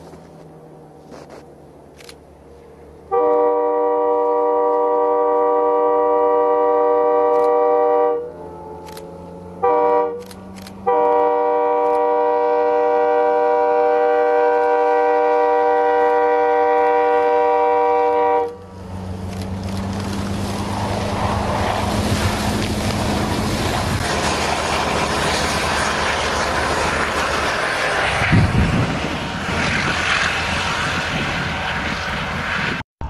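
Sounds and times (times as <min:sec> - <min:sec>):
train rumble and hiss: 0:00.0 - 0:32.8
locomotive air horn: 0:03.1 - 0:18.7.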